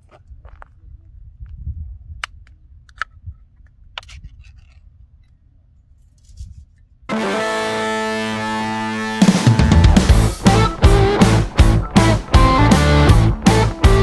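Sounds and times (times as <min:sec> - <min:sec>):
background music with held chord: 0:07.1 - 0:14.0.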